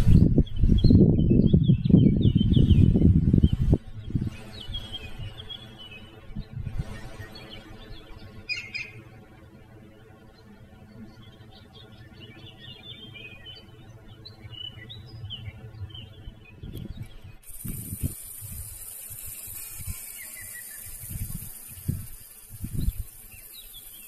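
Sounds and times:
small birds chirping: 0.0s - 9.3s, 10.0s - 24.0s
steady high hiss: 2.6s - 24.0s.

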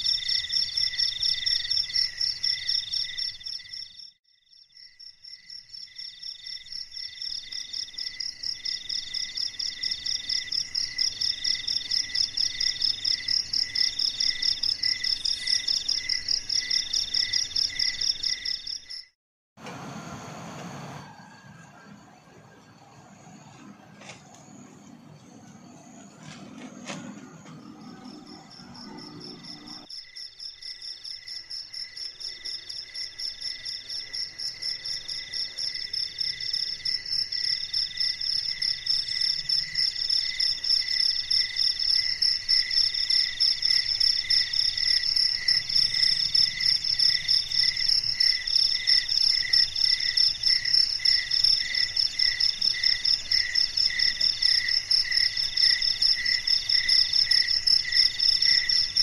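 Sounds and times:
crickets trilling: 23.3s - 59.0s.

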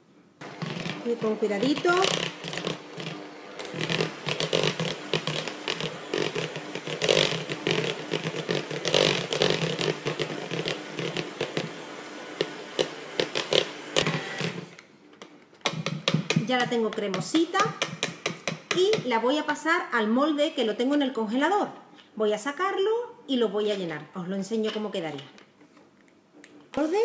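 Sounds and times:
electric hand mixer humming: 0.4s - 14.8s.

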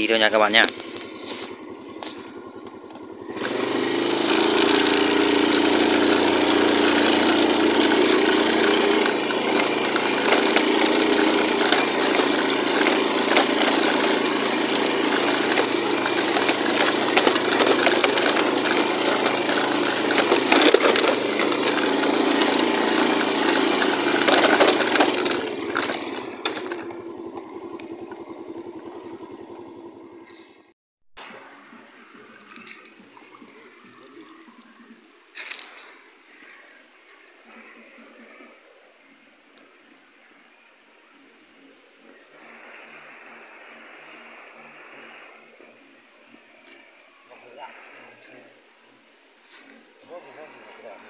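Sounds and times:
motorbike engine running: 0.0s - 34.4s
tyres crunching on stones: 6.9s - 27.7s, 31.5s - 37.7s.

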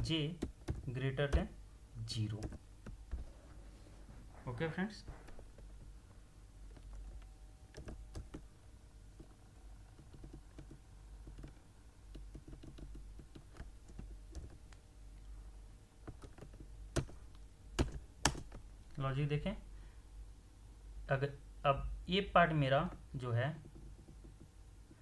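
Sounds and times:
computer keyboard keystrokes: 0.0s - 1.5s, 2.3s - 3.2s, 6.7s - 8.5s, 9.9s - 14.8s, 16.1s - 17.2s, 17.8s - 18.6s
faint low hum: 0.0s - 25.0s.

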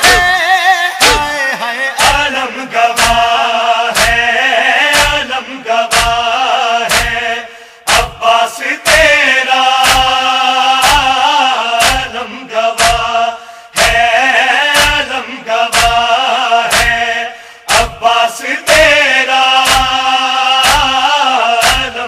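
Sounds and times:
chest-beating strikes: 0.0s - 0.4s, 1.0s - 1.3s
men chanting together: 0.0s - 22.0s.

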